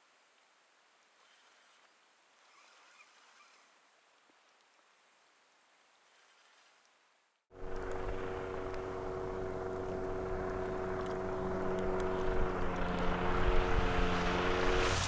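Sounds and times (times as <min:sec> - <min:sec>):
outboard motor drone: 0:07.5 - 0:15.0.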